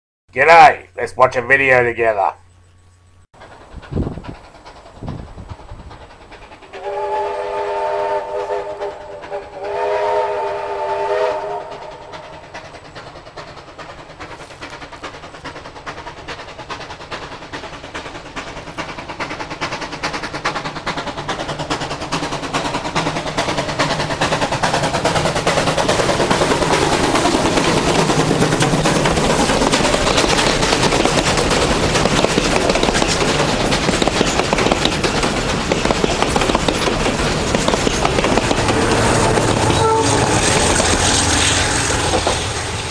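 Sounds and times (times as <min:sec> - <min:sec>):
steam locomotive chuffing: 0:02.4 - 0:42.9
steam locomotive chime whistle: 0:06.8 - 0:12.2, 0:38.7 - 0:42.9.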